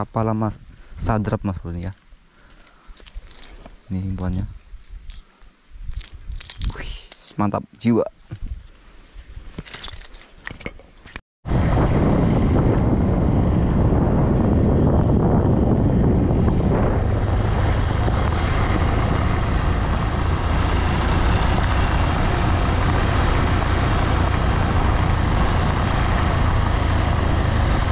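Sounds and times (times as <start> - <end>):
wind noise: 0.0 - 27.9
road noise: 11.5 - 27.9
vehicle engine running: 11.6 - 27.9.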